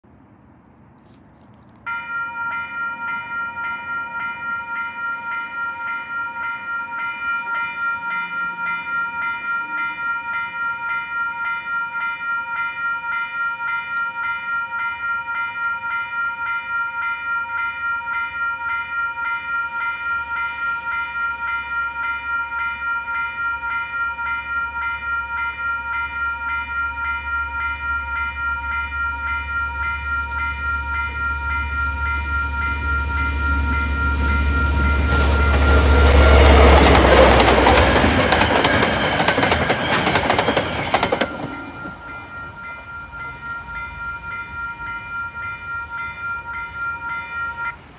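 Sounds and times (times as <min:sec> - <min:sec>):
level crossing alarm bell: 0:01.9 - 0:47.9
diesel locomotive rumble: 0:29.1 - 0:47.9.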